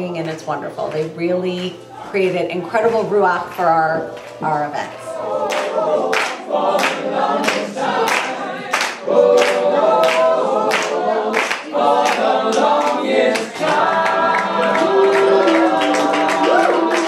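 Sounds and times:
male a cappella group singing: 0:04.4 - 0:17.0
hand claps: 0:05.4 - 0:17.0.

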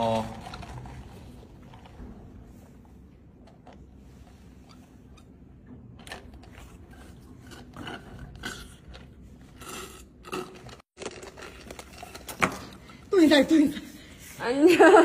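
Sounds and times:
slurping drink through a straw: 0:06.6 - 0:12.1.

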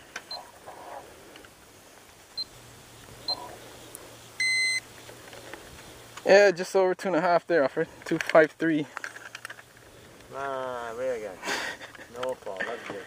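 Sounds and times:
luggage scale beep: 0:03.3 - 0:03.5, 0:04.4 - 0:04.8.

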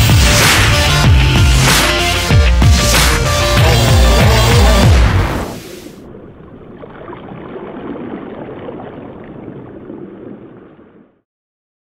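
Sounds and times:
music: 0:00.0 - 0:05.8.

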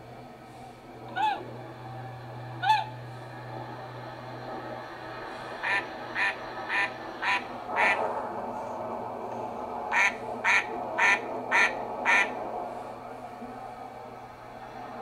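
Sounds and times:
duck quacking: 0:05.6 - 0:08.0, 0:09.9 - 0:12.4.

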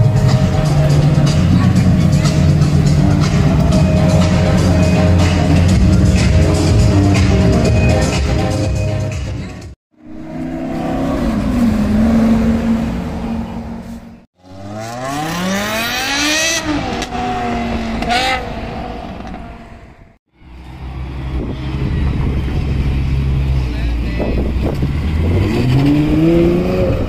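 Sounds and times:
car engine revving: 0:00.0 - 0:09.1, 0:10.0 - 0:27.0
car accelerating hard: 0:10.0 - 0:19.9, 0:24.4 - 0:27.0.

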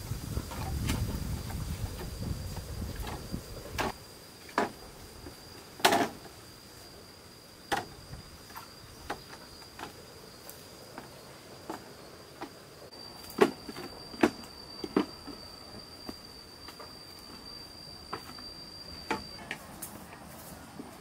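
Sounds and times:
high insect drone: 0:00.0 - 0:21.0
bamboo poles clacking: 0:03.0 - 0:06.4.

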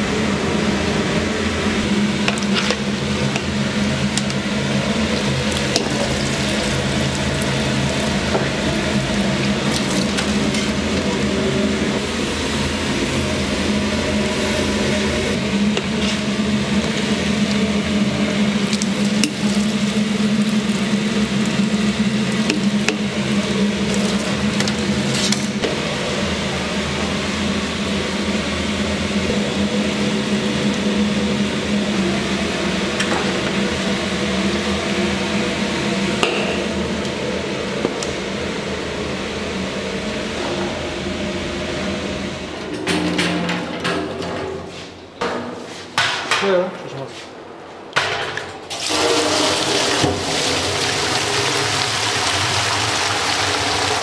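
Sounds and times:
machine hum with low drone: 0:00.0 - 0:45.5
noisy clatter: 0:42.4 - 0:45.4.

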